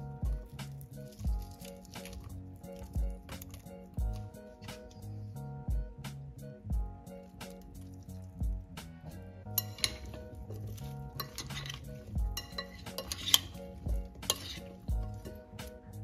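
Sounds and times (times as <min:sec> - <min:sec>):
calm hip-hop beat: 0:00.0 - 0:09.6, 0:10.2 - 0:16.0
spoon scraping glass bowl: 0:09.5 - 0:15.5.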